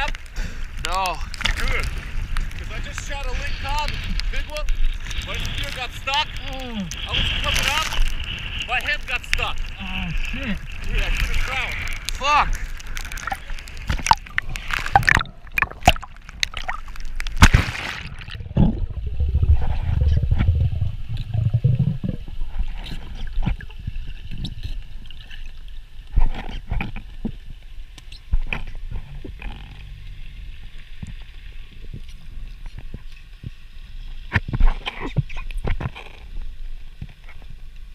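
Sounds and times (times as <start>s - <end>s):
seawater splashing: 0.0s - 24.3s
underwater gurgling: 0.0s - 37.9s
low underwater rumble: 6.4s - 33.6s.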